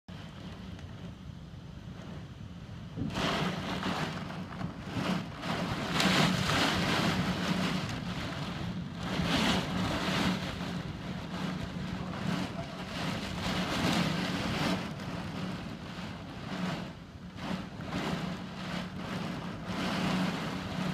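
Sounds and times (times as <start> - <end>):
wind and heavy rain: 0.1 - 20.9.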